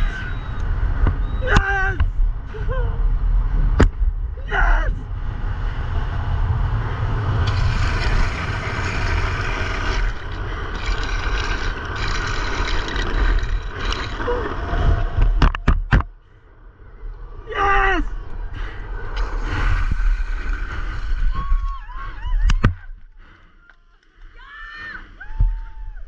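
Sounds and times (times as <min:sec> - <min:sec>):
wind buffeting camera: 0:00.0 - 0:23.2
skateboard wheels rolling on asphalt: 0:05.0 - 0:15.4, 0:18.2 - 0:22.3.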